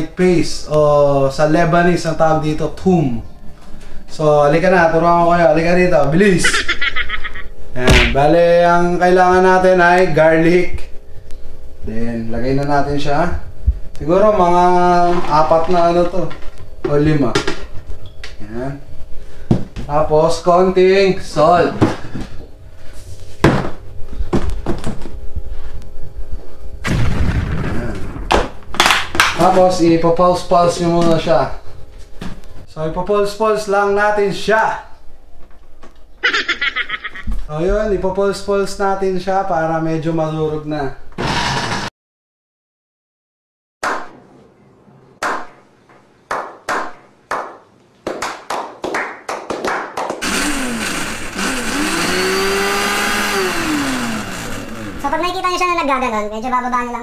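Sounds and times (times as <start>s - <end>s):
hands clapping: 28.8s - 29.4s, 46.3s - 50.2s
electric blender motor whine: 50.2s - 55.2s.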